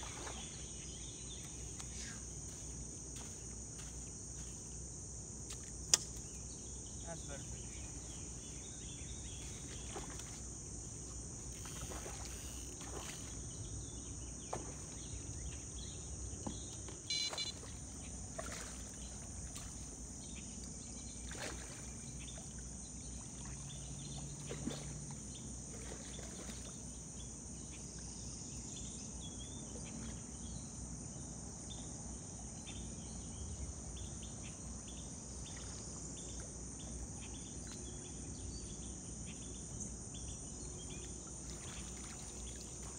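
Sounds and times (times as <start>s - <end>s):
splashes: 0.0s - 0.6s, 9.4s - 13.6s, 14.4s - 15.2s, 17.1s - 20.1s, 21.2s - 26.9s, 41.1s - 42.9s
crickets chirping: 0.0s - 42.9s.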